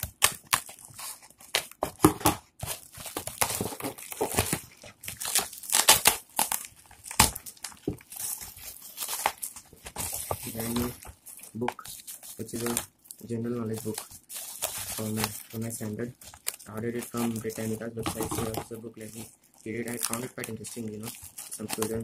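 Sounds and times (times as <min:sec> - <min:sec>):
plastic wrapping crinkling: 0:00.0 - 0:22.0.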